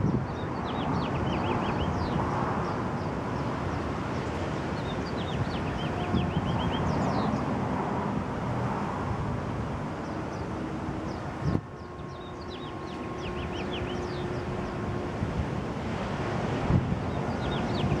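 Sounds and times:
high bird chirps: 0:11.8 - 0:14.5.

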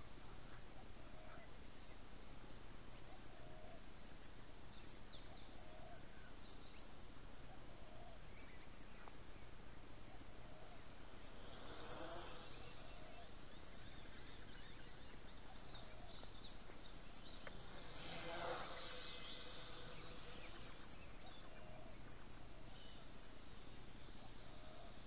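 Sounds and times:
toy quadcopter propellers whirring: 0:11.1 - 0:14.5, 0:17.1 - 0:21.6.

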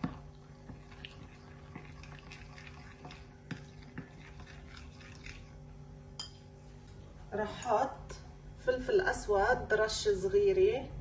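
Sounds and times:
spoon stirring wet sauce: 0:00.0 - 0:05.6.

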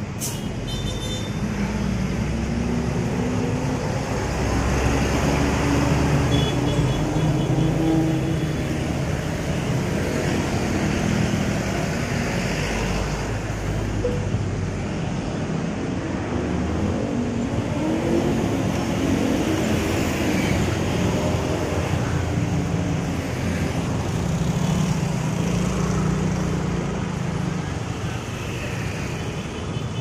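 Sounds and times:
road traffic rushing: 0:00.0 - 0:30.0.

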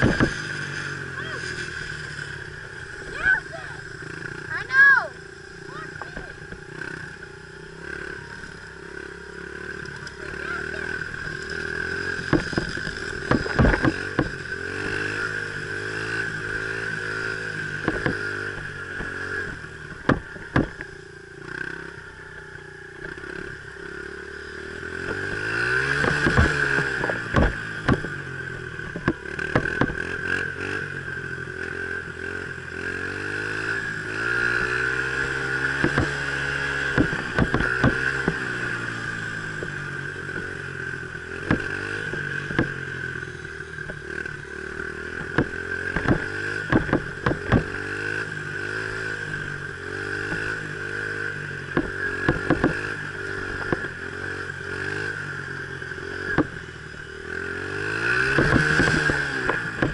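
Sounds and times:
sharp knocks and clatter: 0:00.0 - 0:00.5, 0:12.2 - 0:14.9, 0:17.8 - 0:20.9, 0:25.9 - 0:28.2, 0:28.8 - 0:30.2, 0:35.6 - 0:38.6, 0:41.4 - 0:42.8, 0:45.1 - 0:48.1, 0:51.7 - 0:53.9, 0:58.1 - 0:59.9
dirt bike engine revving: 0:00.0 - 0:59.9.

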